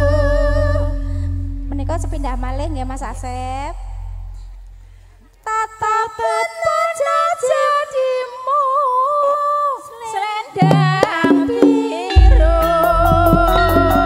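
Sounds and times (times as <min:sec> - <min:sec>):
bass notes: 0:00.0 - 0:05.4, 0:12.1 - 0:14.0
band with drums: 0:10.6 - 0:14.0.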